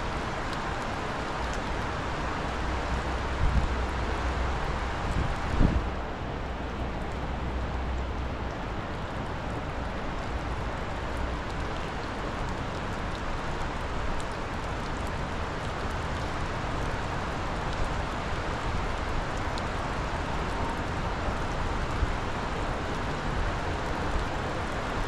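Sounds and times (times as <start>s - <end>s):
river rushing: 0.0s - 25.0s
wind buffeting microphone: 4.9s - 6.1s.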